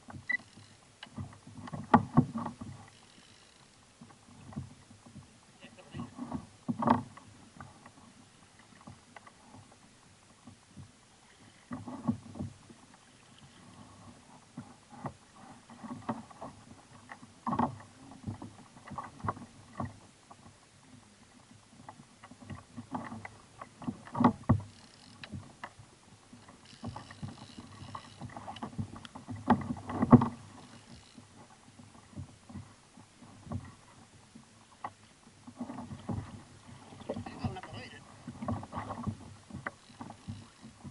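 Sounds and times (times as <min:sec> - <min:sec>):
waves slapping kayak hull: 0:00.0 - 0:40.9
knocks and thumps on hull: 0:01.1 - 0:02.9, 0:06.0 - 0:08.0, 0:14.5 - 0:20.6, 0:21.8 - 0:25.8, 0:26.4 - 0:30.8, 0:31.4 - 0:33.9, 0:34.8 - 0:40.9.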